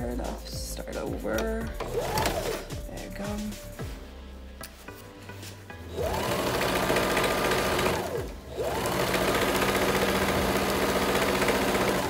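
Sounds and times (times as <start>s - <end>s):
sewing machine stitching: 1.8s - 2.7s, 5.9s - 12.0s.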